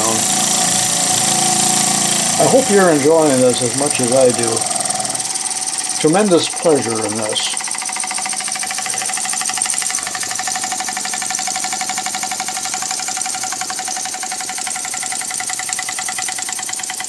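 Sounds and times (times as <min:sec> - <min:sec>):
model steam engine puffing: 0:00.0 - 0:17.0.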